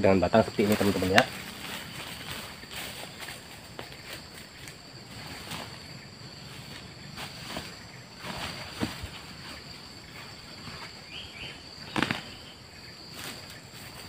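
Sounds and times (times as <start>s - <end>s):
footsteps on dry grass: 0.6s - 11.2s.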